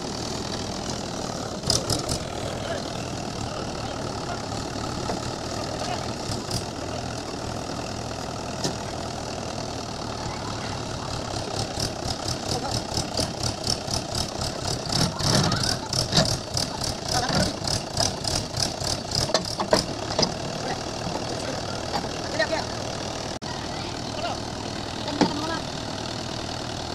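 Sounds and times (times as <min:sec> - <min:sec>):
tractor diesel engine idling: 0:00.0 - 0:26.9.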